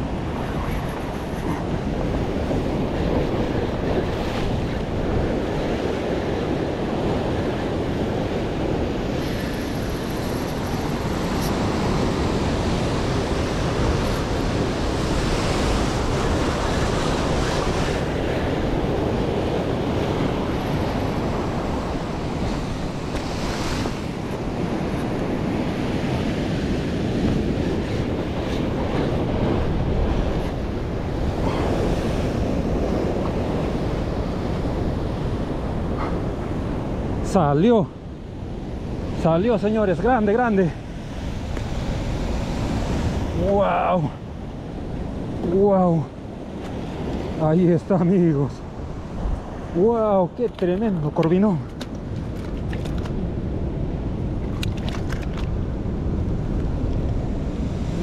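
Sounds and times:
wind rumbling on microphone: 0.0 - 58.0.

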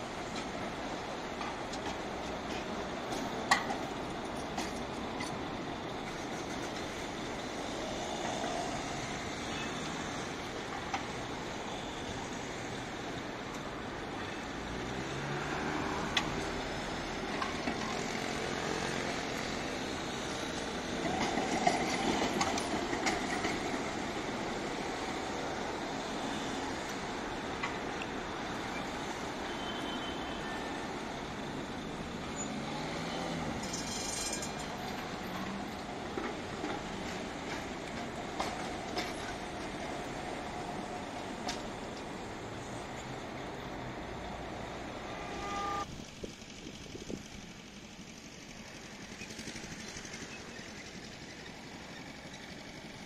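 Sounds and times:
road traffic: 0.0 - 53.0
trams running on rails: 0.0 - 53.0
cars passing: 7.1 - 45.9.

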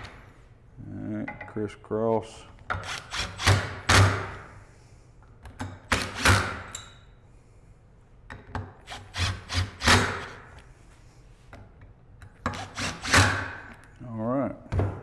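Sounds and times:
cordless impact driver bursts: 8.9 - 10.4.

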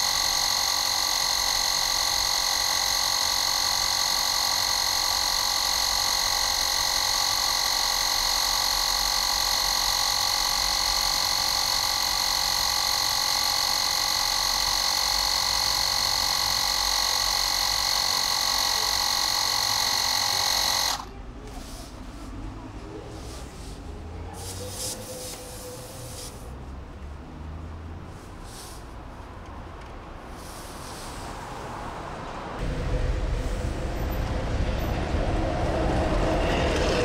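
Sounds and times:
mini compressor motor whine: 0.0 - 21.2.

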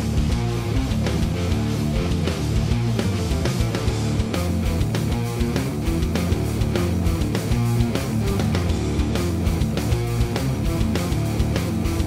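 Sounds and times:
electric guitar rock music: 0.0 - 12.0
steady drum beat: 0.0 - 12.0.

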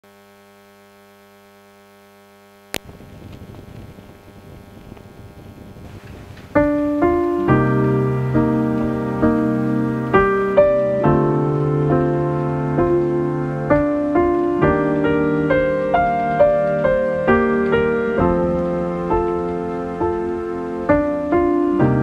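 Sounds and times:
faint steady drone: 0.0 - 21.6
faint crackling hiss: 0.0 - 22.0
piano chords: 6.0 - 22.0.

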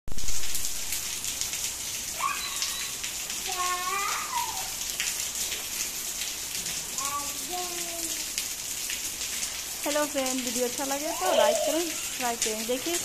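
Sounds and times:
heavy rain: 0.1 - 13.0
raindrops ticking on umbrella: 0.1 - 13.0
short high-pitched calls: 2.2 - 3.0.

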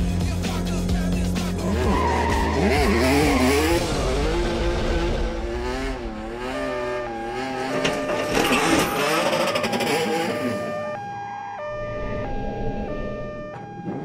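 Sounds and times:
car engine revving: 1.4 - 11.0
tyres squealing and skidding: 1.5 - 4.6, 6.3 - 10.9.

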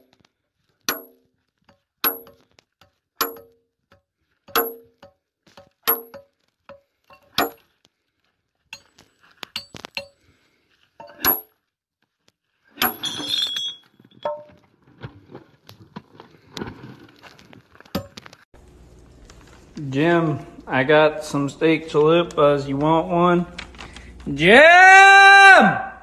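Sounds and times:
sledgehammer striking steel wedges: 0.8 - 1.3, 2.0 - 2.5, 3.2 - 3.6, 4.5 - 7.7, 11.0 - 11.6, 12.7 - 14.5
stone block cracking and crumbling: 13.9 - 18.5.

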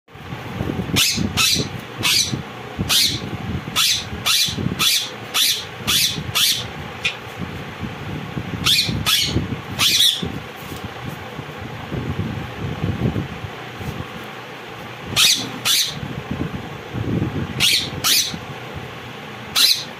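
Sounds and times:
parakeets screeching: 0.9 - 7.2, 8.6 - 10.3, 15.1 - 16.0, 17.6 - 18.4, 19.5 - 19.9.

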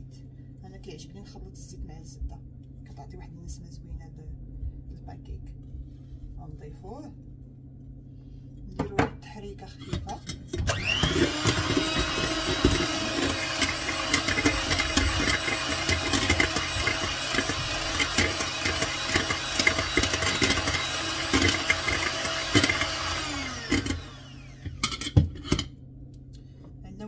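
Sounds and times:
electric hand mixer running: 10.5 - 25.4.

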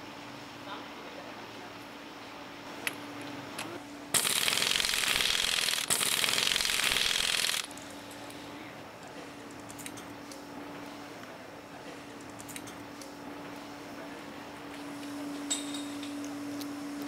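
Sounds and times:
pneumatic impact wrench hammering: 4.2 - 7.7.

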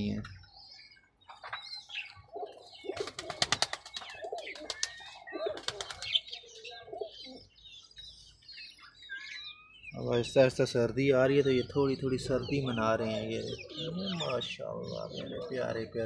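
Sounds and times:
pigeons cooing: 0.0 - 8.3, 11.4 - 16.0
birds chirping: 0.0 - 16.0
pigeon wings flapping: 2.9 - 6.2.

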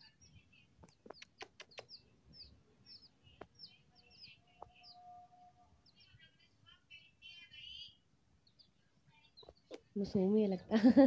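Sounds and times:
chicks peeping: 0.0 - 10.3
sharp clicks: 0.8 - 2.0.

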